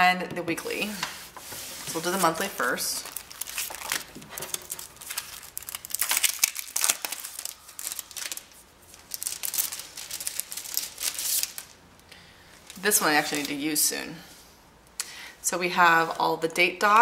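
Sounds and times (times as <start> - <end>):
sticker sheets crinkling: 0.8 - 11.8, 12.7 - 13.8.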